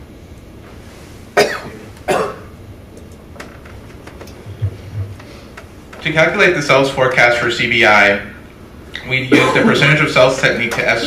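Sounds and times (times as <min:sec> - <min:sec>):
person coughing: 0:01.4 - 0:02.5, 0:09.3 - 0:09.9.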